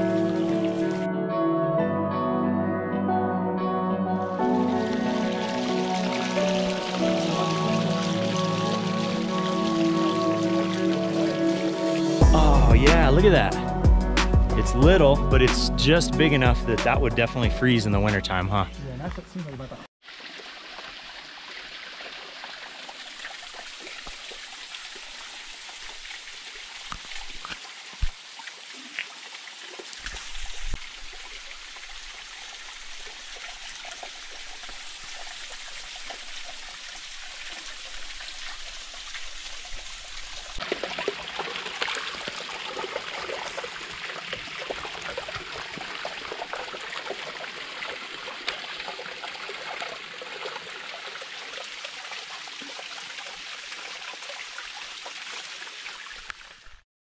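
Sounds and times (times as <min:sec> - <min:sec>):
waterfall splashing on rock: 0:20.0 - 0:56.8.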